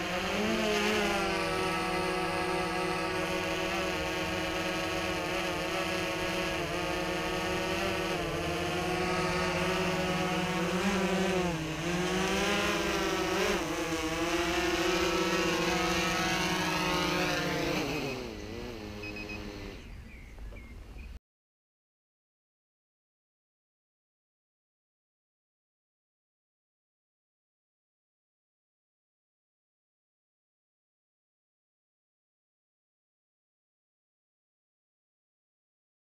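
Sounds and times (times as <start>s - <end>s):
drone motors spinning down: 0.0s - 21.1s
quadcopter propellers whirring: 0.0s - 21.2s.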